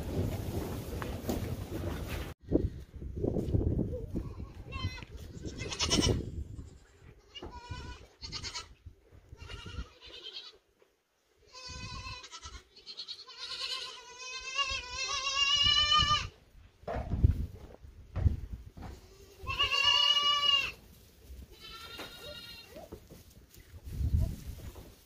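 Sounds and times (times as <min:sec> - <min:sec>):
goat kids bleating: 0:04.1 - 0:10.6, 0:11.4 - 0:16.4, 0:18.9 - 0:20.8, 0:21.5 - 0:23.0.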